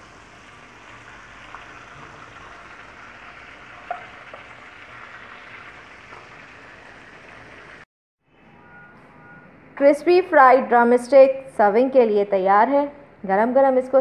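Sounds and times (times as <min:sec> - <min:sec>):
chicken deep-frying in oil: 0:00.0 - 0:07.9.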